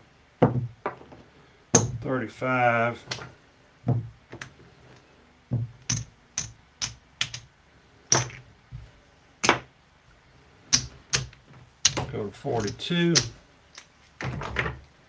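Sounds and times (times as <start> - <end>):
casino chips clicking: 5.8 - 7.5.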